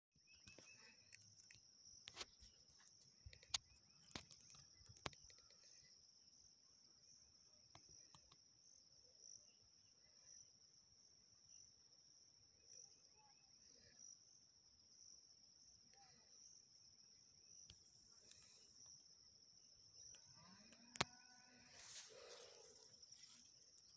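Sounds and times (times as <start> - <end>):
cricket trilling: 0.2 - 23.9.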